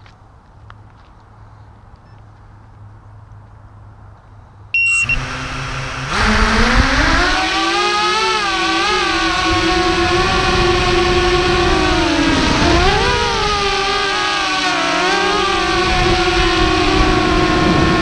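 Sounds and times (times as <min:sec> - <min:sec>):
short electronic beep: 0:04.8 - 0:05.3
drone motors whining: 0:04.8 - 0:18.0.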